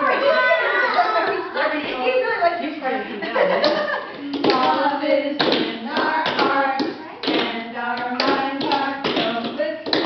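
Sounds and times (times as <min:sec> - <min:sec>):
adults singing together: 0:03.7 - 0:10.0.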